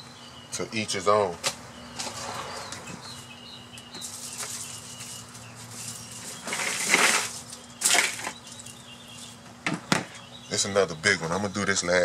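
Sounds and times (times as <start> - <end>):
faint bird chirps: 1.7 - 6.6.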